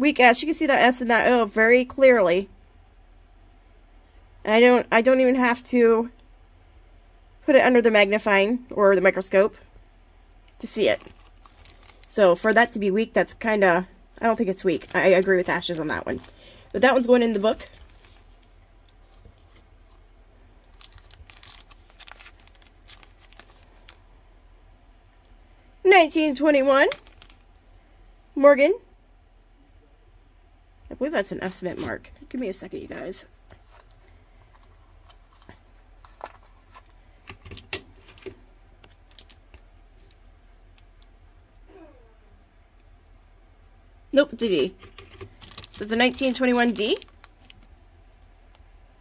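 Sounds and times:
plastic bag crinkling: 10.6 - 13.5, 14.1 - 24.1, 26.2 - 27.6, 33.5 - 41.0, 44.8 - 47.8.

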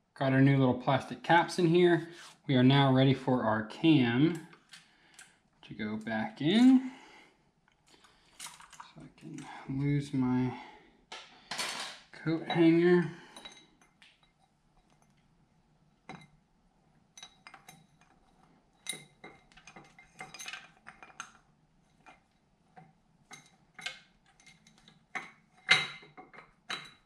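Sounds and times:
light metallic clinks and taps: 11.1 - 15.3, 16.0 - 16.4, 17.2 - 21.4, 22.0 - 27.0.

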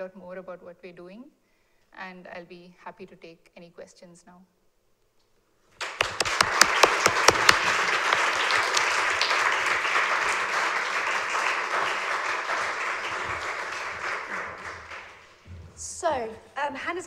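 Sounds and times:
audience applauding: 5.8 - 15.4.

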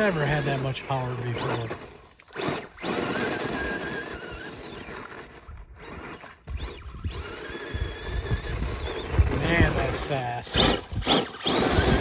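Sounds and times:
electric motor whining: 0.0 - 12.0.

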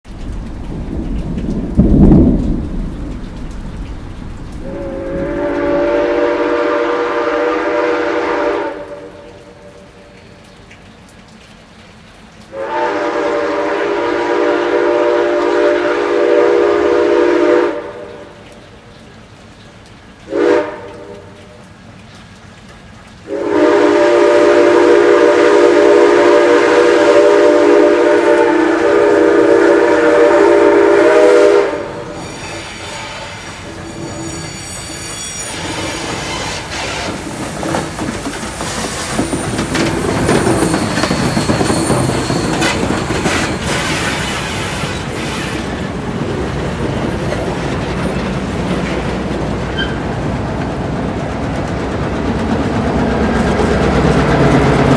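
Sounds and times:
rushing train noise: 0.0 - 54.9
steam whistle blast: 4.6 - 9.3, 12.5 - 18.2, 20.3 - 21.2, 23.3 - 37.2, 38.7 - 45.7.

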